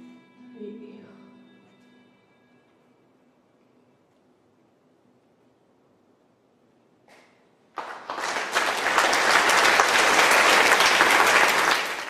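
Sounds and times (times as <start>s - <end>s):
audience applauding: 7.7s - 12.0s.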